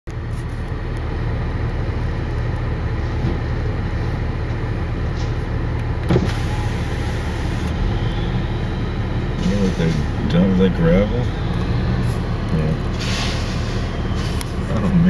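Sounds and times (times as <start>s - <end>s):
diesel engine running: 0.1s - 15.0s
gravel dumping: 12.0s - 15.0s.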